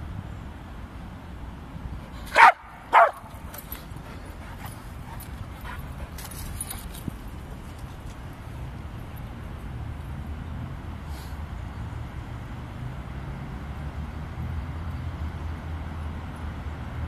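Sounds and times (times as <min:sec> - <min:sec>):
dog barking: 0:02.3 - 0:03.3.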